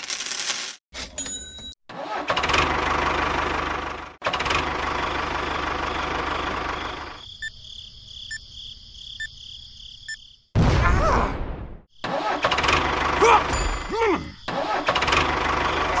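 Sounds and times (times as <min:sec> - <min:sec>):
engine pulsing rumble: 0:02.2 - 0:07.3, 0:12.4 - 0:16.0.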